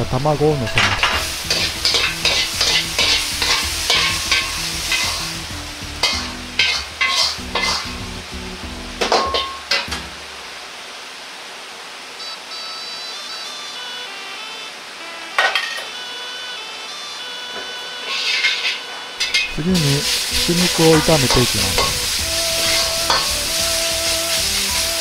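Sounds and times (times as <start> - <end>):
vegetables sizzling in oil: 0.0 - 14.2, 14.8 - 25.0
steel ladle scraping a wok: 0.7 - 8.1, 9.0 - 9.8, 18.0 - 25.0.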